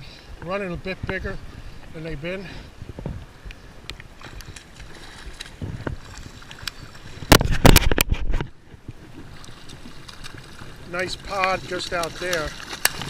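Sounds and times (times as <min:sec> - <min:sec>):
water noise: 0:00.0 - 0:13.0
wind: 0:00.0 - 0:13.0
knocks and scrapes on microphone: 0:02.8 - 0:03.2, 0:07.2 - 0:09.0.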